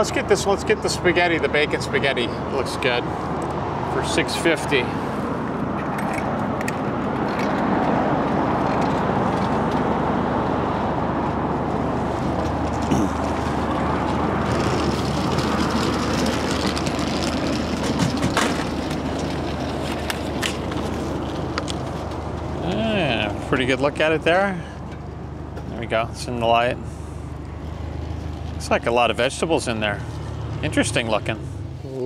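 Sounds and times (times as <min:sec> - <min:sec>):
street traffic: 0:00.0 - 0:32.0
sharp clicks and knocks: 0:05.8 - 0:08.0.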